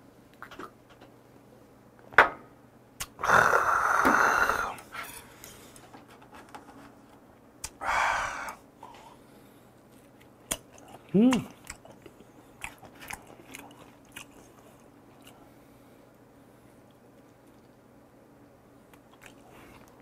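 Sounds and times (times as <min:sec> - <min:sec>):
man exhaling raspily: 0:07.8 - 0:08.6.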